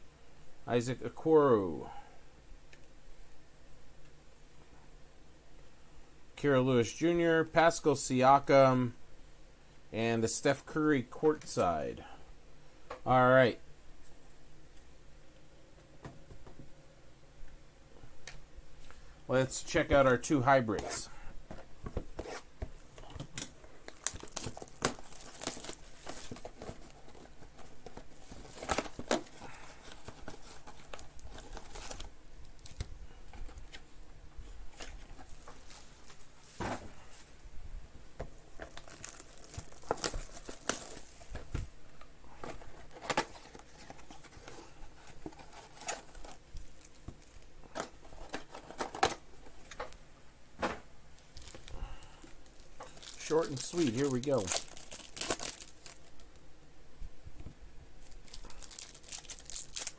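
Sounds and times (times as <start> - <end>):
card packs crinkling and tearing: 23.0 - 32.9, 38.6 - 41.3, 42.4 - 49.8, 51.2 - 56.4, 58.0 - 59.9.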